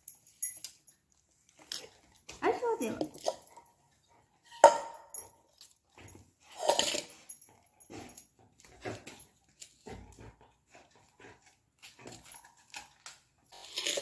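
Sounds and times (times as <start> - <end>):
dog crunching vegetable: 0.6 - 14.0
knife cutting over steel pot: 13.6 - 14.0.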